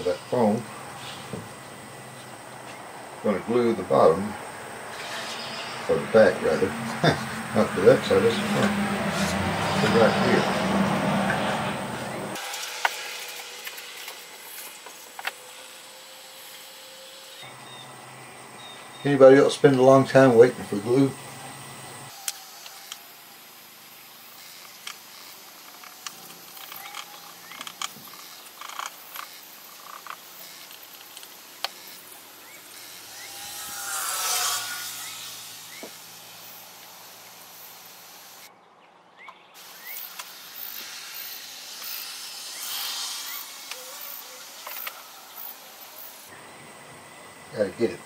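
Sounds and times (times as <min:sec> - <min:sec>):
insect chorus: 0:00.0 - 0:38.5, 0:39.6 - 0:48.0
rushing noise: 0:04.6 - 0:16.8, 0:32.7 - 0:38.5, 0:39.6 - 0:46.3.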